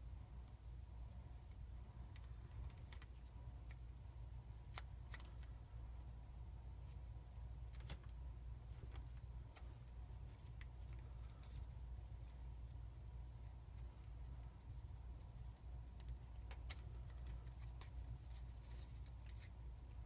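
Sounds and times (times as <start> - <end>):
steady low hum: 0.0 - 20.0
paper folding crackles: 13.7 - 20.0.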